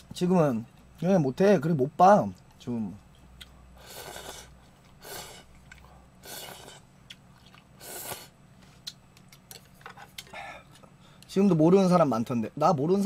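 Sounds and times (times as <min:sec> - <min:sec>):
person slurping noodles: 0:03.8 - 0:05.5, 0:06.2 - 0:06.8, 0:07.8 - 0:08.3.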